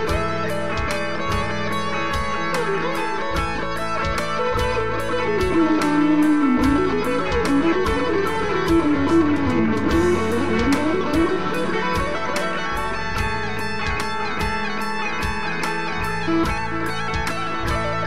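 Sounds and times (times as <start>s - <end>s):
backing track with steady beat: 0.0s - 18.0s
electric guitar solo: 0.0s - 18.0s.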